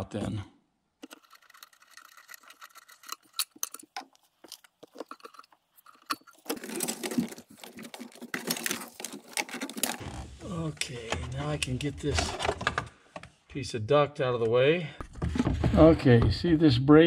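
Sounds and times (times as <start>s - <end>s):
duct crackling and rattling: 1.0s - 13.0s.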